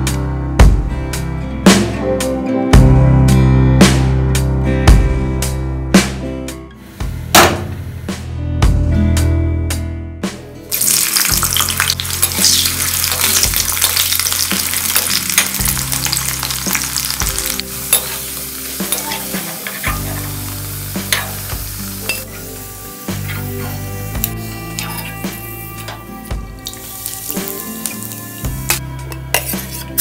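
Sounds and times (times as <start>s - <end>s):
potatoes sizzling in hot oil: 10.7s - 24.2s, 26.6s - 28.8s.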